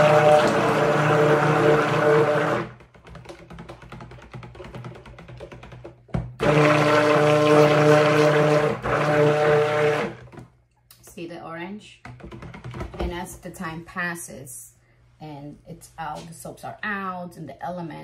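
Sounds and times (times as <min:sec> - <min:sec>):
stick blender motor humming: 0:00.0 - 0:02.8, 0:06.4 - 0:10.4
blender head knocking and sloshing: 0:00.0 - 0:10.5.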